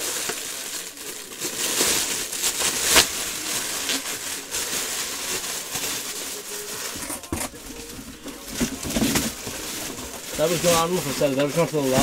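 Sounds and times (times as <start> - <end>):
rustling and handling: 0.0 - 12.0.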